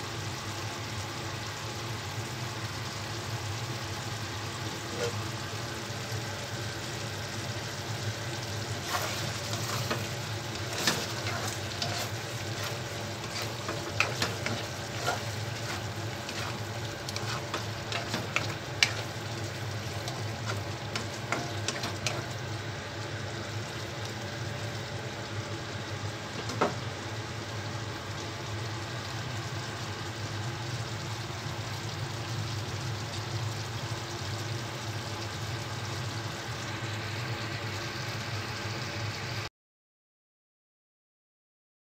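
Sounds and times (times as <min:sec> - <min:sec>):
stew simmering in a wok: 0:00.0 - 0:39.5
steady low hum: 0:02.6 - 0:27.4
wooden spatula scraping a pan: 0:04.7 - 0:05.5, 0:08.6 - 0:22.4.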